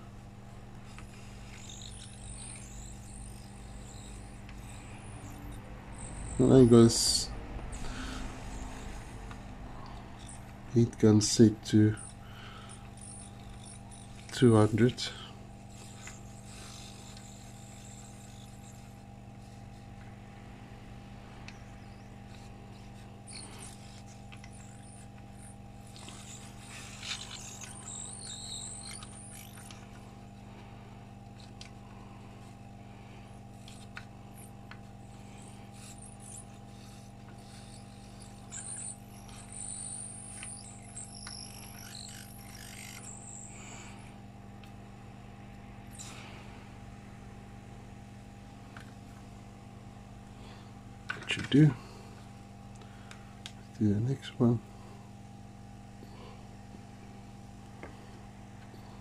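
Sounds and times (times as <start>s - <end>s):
electrical hum: 0.0s - 59.0s
high-pitched solder sizzling: 0.8s - 9.1s, 10.1s - 19.8s, 21.5s - 29.8s, 33.6s - 44.0s.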